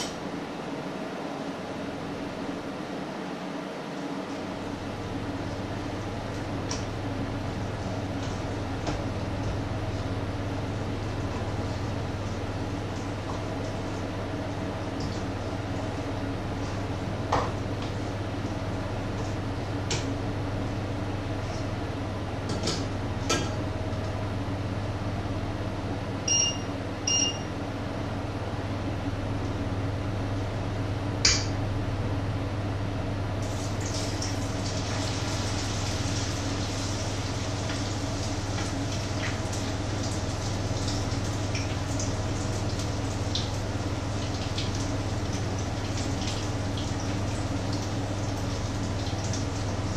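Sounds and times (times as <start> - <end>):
short electronic beeps: 26.3 - 27.5.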